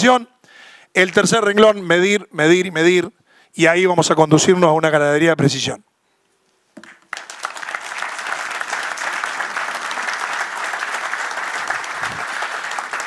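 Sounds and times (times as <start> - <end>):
audience applauding: 7.1 - 13.0.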